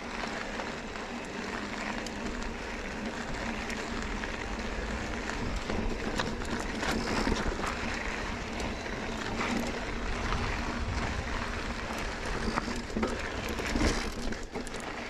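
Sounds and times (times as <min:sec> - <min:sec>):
bike clicks and rattles: 0:00.0 - 0:15.0
bike tyres on loose gravel: 0:00.0 - 0:15.0
wind rumble on microphone: 0:02.5 - 0:14.6.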